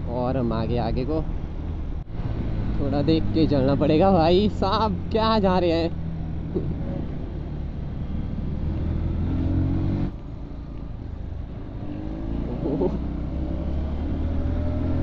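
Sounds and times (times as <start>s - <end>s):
motorcycle engine accelerating: 6.0s - 10.2s, 11.5s - 15.0s.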